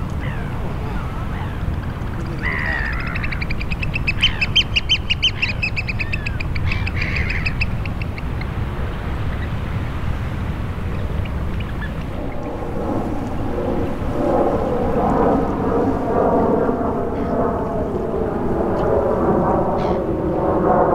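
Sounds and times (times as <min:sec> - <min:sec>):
shore water: 0:00.0 - 0:20.9
wind: 0:00.0 - 0:20.9
oystercatchers piping calls: 0:00.2 - 0:08.5.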